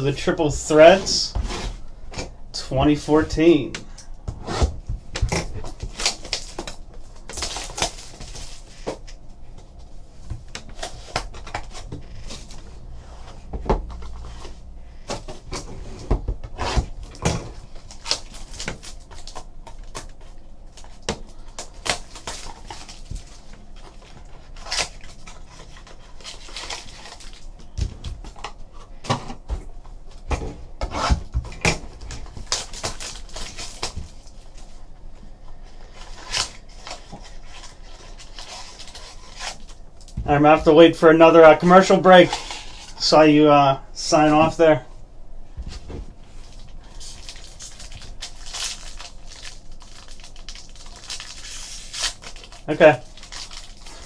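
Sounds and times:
cellophane wrapper tearing and crinkling: 5.3s - 8.8s, 17.6s - 27.7s, 32.0s - 34.5s, 36.0s - 40.1s, 46.4s - 54.0s.

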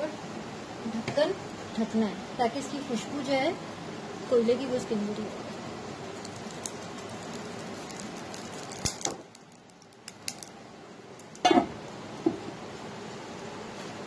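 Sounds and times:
oil sizzling on charcoal: 2.8s - 12.2s.

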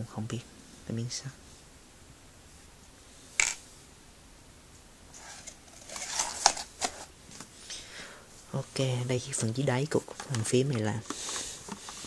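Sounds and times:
rustling and clicking in a box: 5.2s - 7.5s, 9.4s - 12.0s.

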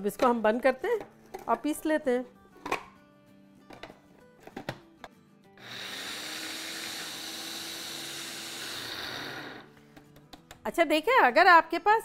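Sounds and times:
electric grinder whirring: 5.6s - 9.7s.

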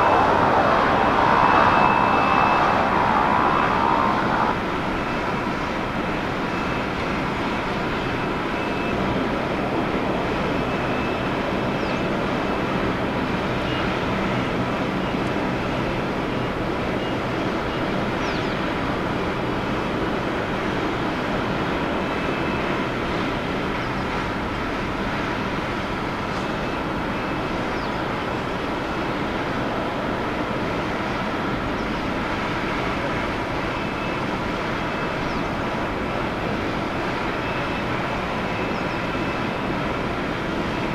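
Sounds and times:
high whining tones: 0.0s - 5.7s
jet engines running: 0.0s - 40.9s.

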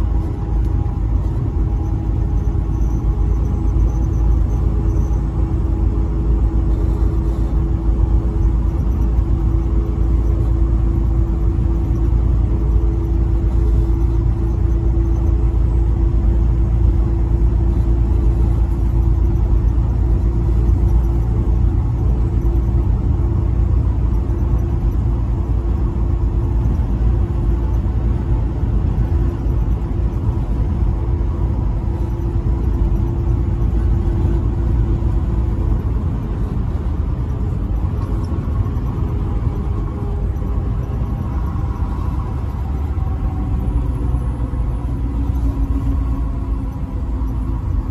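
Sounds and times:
constant hum: 0.0s - 47.9s
truck engine and road rumble: 0.0s - 47.9s.

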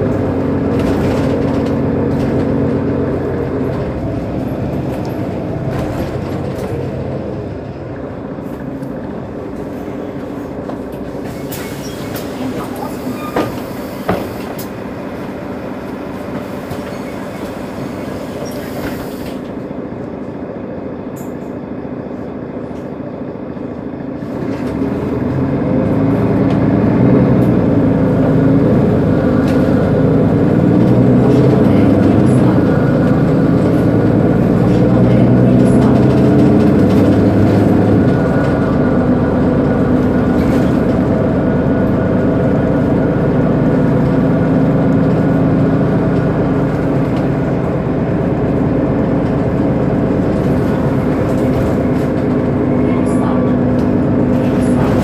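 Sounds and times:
bus diesel engine idling: 0.0s - 55.0s.

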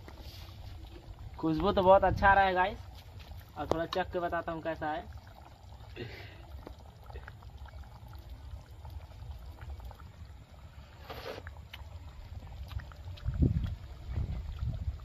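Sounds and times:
short slurp: 10.8s - 11.9s.

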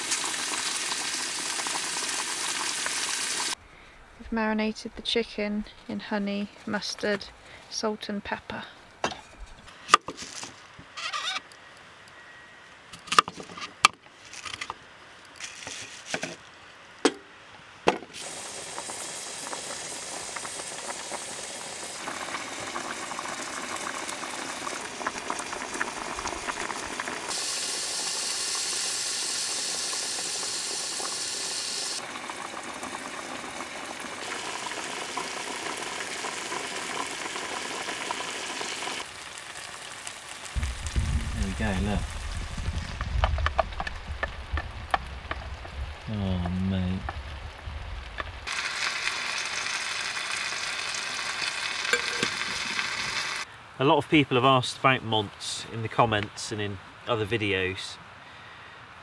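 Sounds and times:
meat sizzling in a pan: 0.0s - 3.6s, 18.2s - 46.1s, 47.2s - 53.5s
pot boiling: 0.0s - 3.6s, 18.1s - 53.5s.

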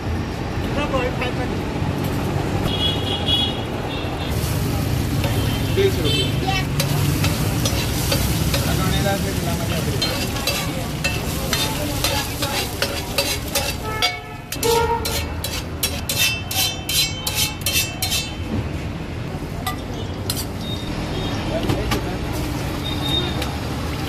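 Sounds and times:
steady sizzling: 4.2s - 18.4s
spatula scraping on griddle: 6.6s - 18.5s
spatula clacking on metal griddle: 6.8s - 18.4s.

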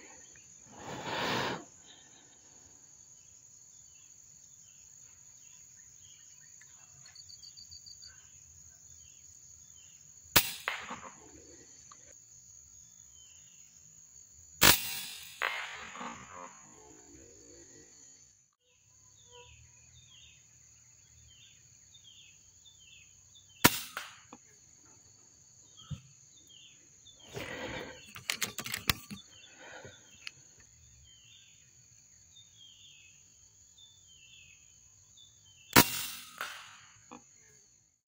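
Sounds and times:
high insect whine: 0.0s - 37.8s
air rifle shots: 10.4s - 11.2s, 14.6s - 16.4s, 23.6s - 24.3s, 35.8s - 36.9s
clicks and rustling: 27.4s - 29.3s.

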